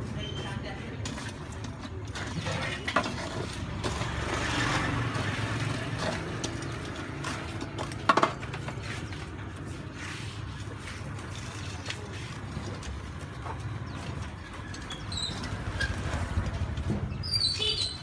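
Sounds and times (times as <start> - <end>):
street traffic hum: 0.0 - 18.0
metal tongs scraping on grill: 0.8 - 13.1.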